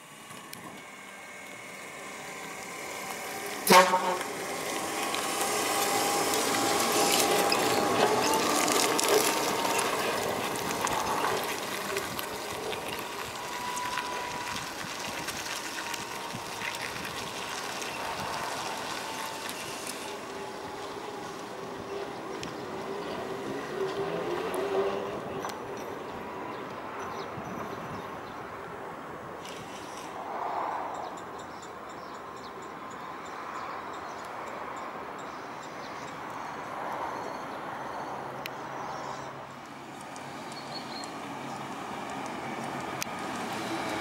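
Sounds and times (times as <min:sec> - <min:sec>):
electric motor whine: 0:00.0 - 0:22.5
bus rolling noise: 0:00.0 - 0:44.0.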